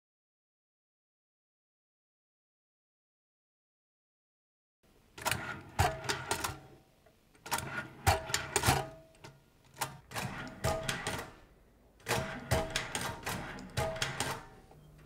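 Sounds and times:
metal tag being stamped: 7.5s - 11.4s, 12.0s - 14.7s.

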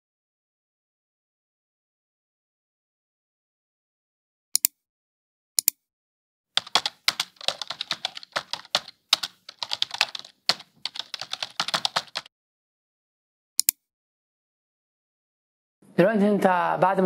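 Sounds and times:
mouse click: 4.6s - 4.8s, 5.6s - 5.8s, 13.6s - 13.8s
fast typing on a keyboard: 6.6s - 12.3s.

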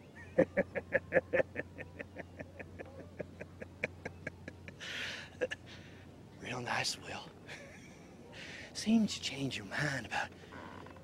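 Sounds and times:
man laughing heartily: 0.4s - 5.6s.

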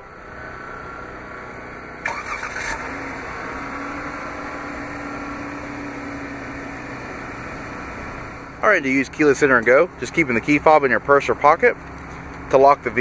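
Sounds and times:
car engine idling: 0.0s - 13.0s
engine starter cranking: 2.0s - 3.1s.

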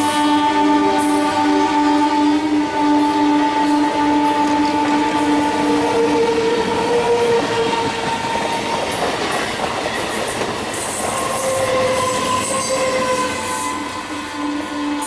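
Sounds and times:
train wheels clattering on track: 3.0s - 15.0s.

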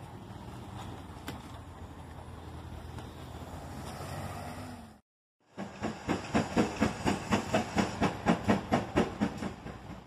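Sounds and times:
steam locomotive chuffing: 5.5s - 10.0s.

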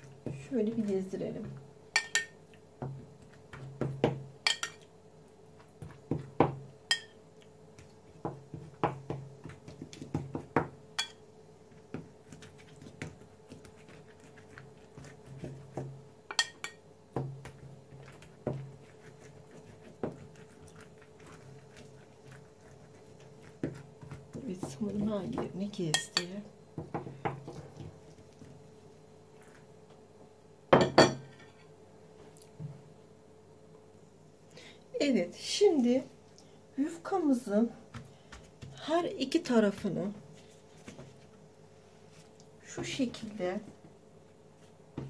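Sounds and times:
faint steady hum: 0.0s - 45.0s
spoon clinking on porcelain bowl: 2.0s - 2.4s, 4.5s - 4.8s, 6.9s - 7.2s, 11.0s - 11.2s, 16.3s - 16.8s.

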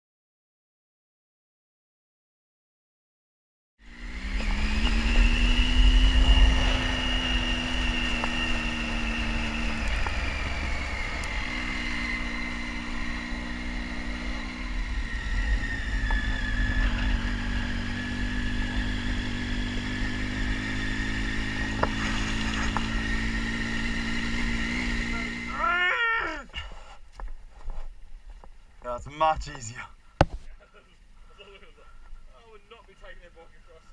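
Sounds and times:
motorcycle engine running: 3.8s - 25.8s.

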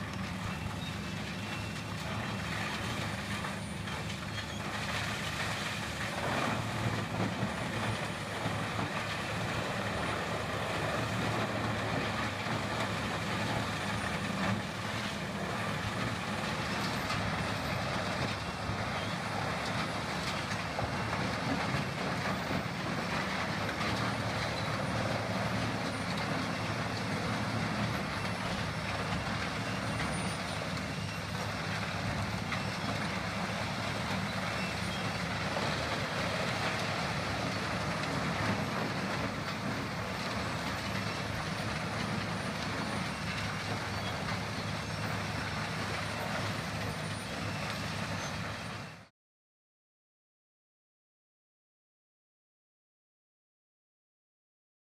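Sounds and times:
wood grinder running under load: 0.0s - 32.5s.

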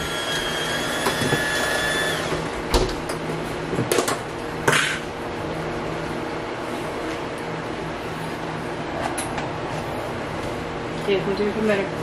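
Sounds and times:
high electric whine: 0.0s - 3.1s.

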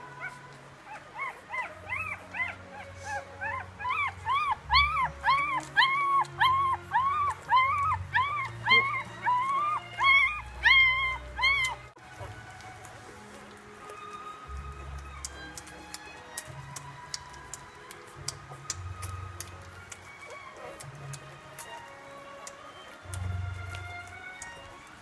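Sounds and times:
puppy crying squeals: 0.1s - 12.3s, 18.5s - 24.8s.

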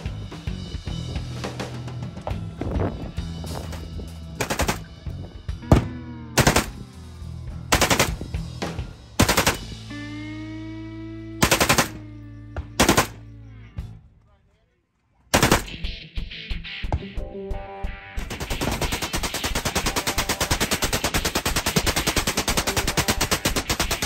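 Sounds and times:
background music: 0.0s - 14.2s, 15.3s - 24.0s
automatic rifle bursts: 4.4s - 4.8s, 6.4s - 6.8s, 7.7s - 8.2s, 9.2s - 9.7s, 11.4s - 12.0s, 12.8s - 13.2s, 15.3s - 15.8s, 18.3s - 24.0s.

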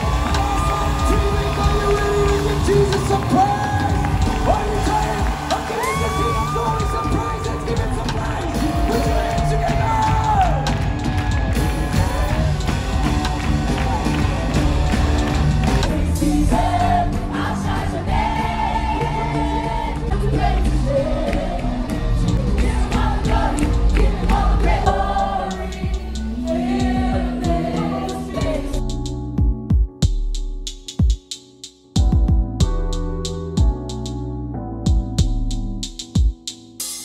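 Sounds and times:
gospel worship music over loudspeakers: 0.0s - 29.9s
heavy bass: 0.0s - 30.9s, 32.0s - 36.1s
crowd singing along: 15.6s - 28.8s.

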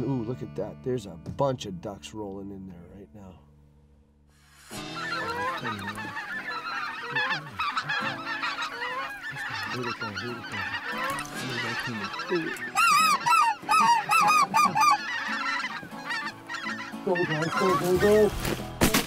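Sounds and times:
geese honking and cackling: 4.7s - 18.6s.

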